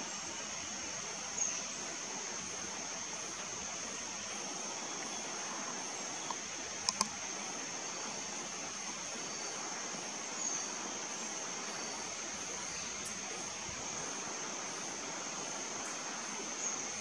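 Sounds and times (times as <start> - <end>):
outdoor hiss: 0.0 - 17.0
sharp clicks: 6.3 - 7.2.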